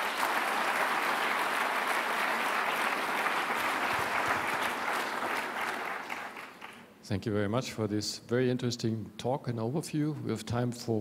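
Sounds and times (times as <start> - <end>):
audience applauding: 0.0 - 6.9.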